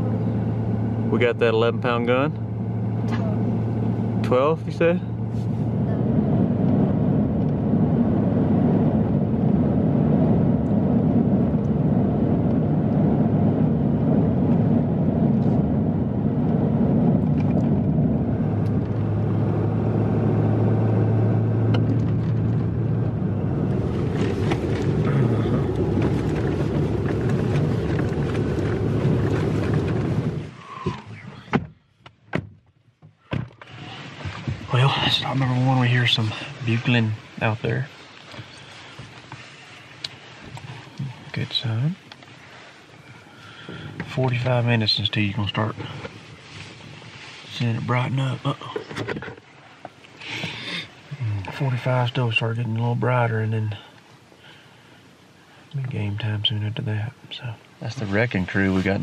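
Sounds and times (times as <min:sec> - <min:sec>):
engine and tyre drone: 0:00.0 - 0:31.5.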